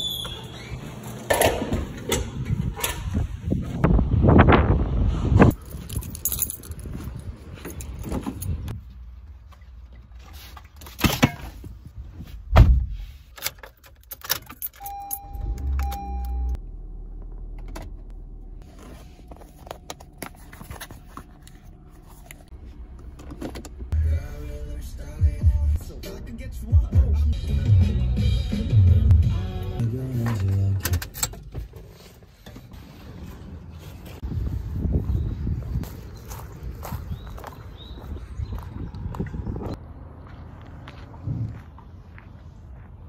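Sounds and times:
car keys jangling: 5.5s - 8.7s, 13.3s - 16.6s
heavy thud: 12.5s - 13.0s
car engine starting and running: 13.4s - 34.2s.

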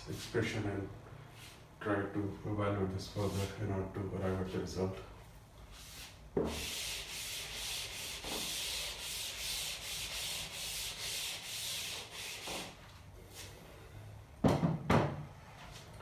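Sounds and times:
eraser scrubbing chalkboard: 3.2s - 3.6s, 5.7s - 13.5s.

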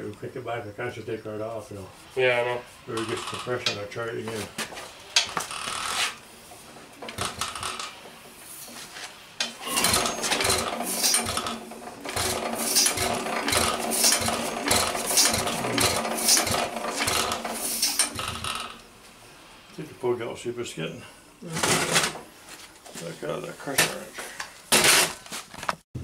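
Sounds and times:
engine gears clanking rhythmically: 9.4s - 18.8s.

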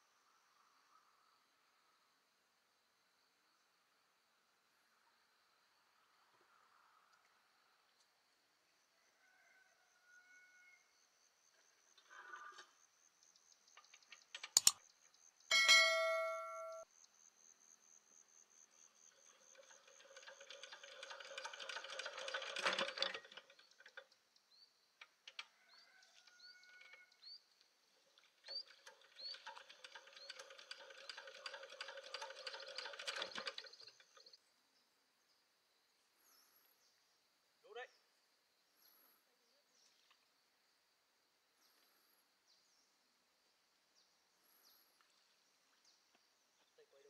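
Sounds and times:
sharp click: 14.4s - 14.9s
struck metal ringing: 15.5s - 16.8s
rapid metal clatter: 19.1s - 24.1s, 28.2s - 34.3s.

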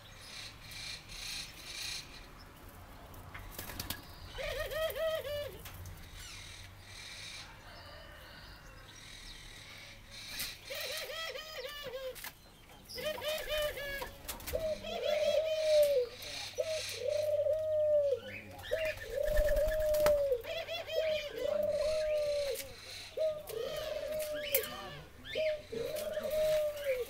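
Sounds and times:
doves cooing and laughing: 4.3s - 5.7s, 10.7s - 12.2s, 13.0s - 27.0s.

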